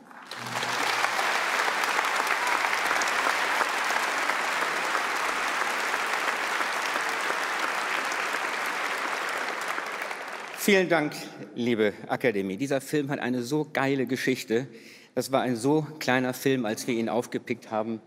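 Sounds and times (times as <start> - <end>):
audience applauding: 0.0 - 10.9.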